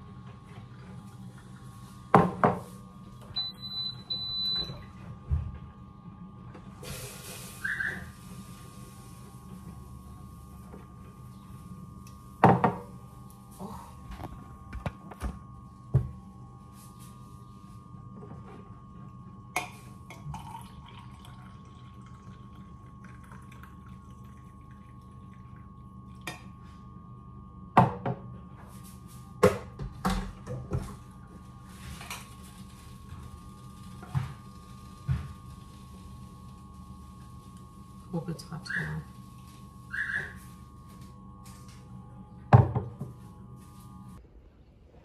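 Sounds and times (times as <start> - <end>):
electrical hum: 0.0 - 45.0
coffee pouring into mug: 19.5 - 26.5.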